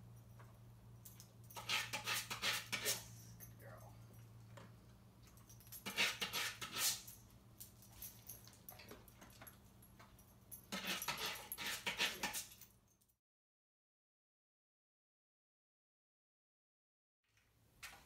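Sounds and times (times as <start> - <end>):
dog claws scratching sandpaper: 1.6 - 3.1, 5.8 - 7.1, 10.7 - 12.6.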